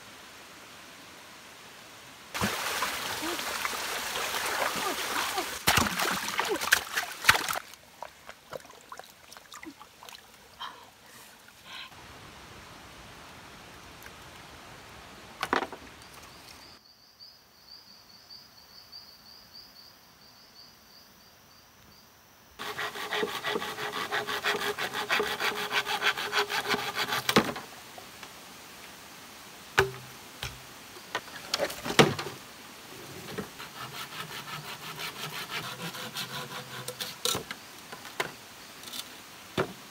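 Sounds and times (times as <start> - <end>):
water splashing in a stream: 2.3 - 10.6
hand saw cutting bamboo: 22.6 - 27.6, 33.5 - 37.4.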